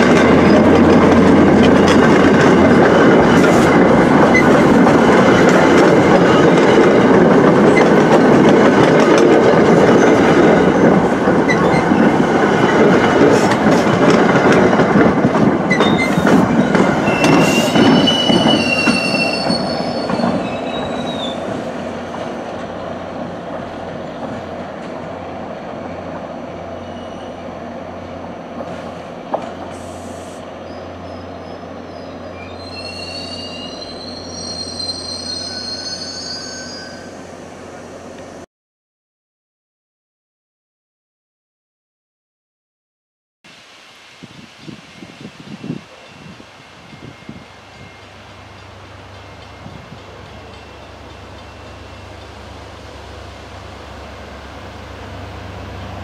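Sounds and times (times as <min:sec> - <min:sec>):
train rolling on rails: 0:00.0 - 0:38.5, 0:43.5 - 0:56.0
high-pitched wheel squeals: 0:15.7 - 0:21.5, 0:30.6 - 0:37.2.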